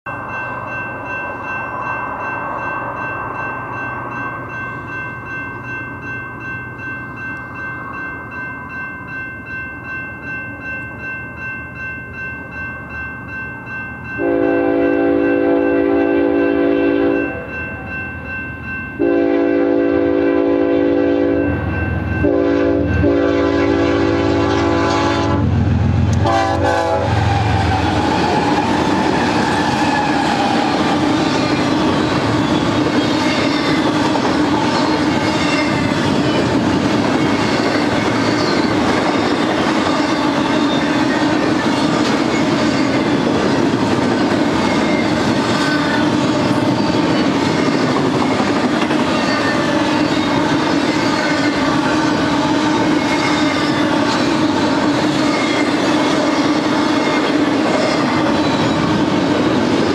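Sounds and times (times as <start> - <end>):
crossing warning bell ringing: 0.0 - 59.9
train rumble and wheel clatter: 0.1 - 59.9
locomotive horn blasts: 14.2 - 17.5, 19.0 - 21.6, 22.2 - 27.8.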